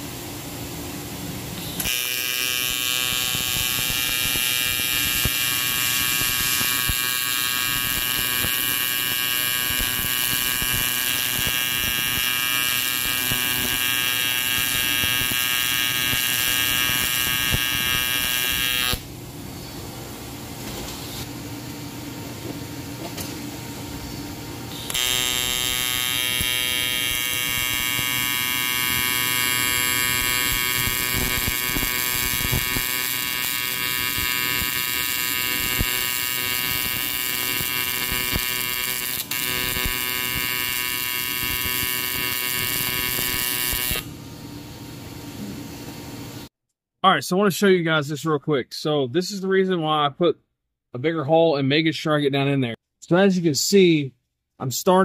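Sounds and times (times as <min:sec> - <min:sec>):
welding arc buzzing: 0:01.6 - 0:19.1, 0:23.2 - 0:44.1.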